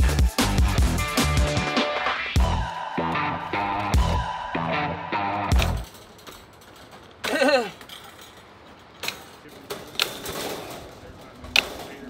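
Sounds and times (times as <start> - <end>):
bolt cutters snapping wire mesh: 9.0 - 10.8.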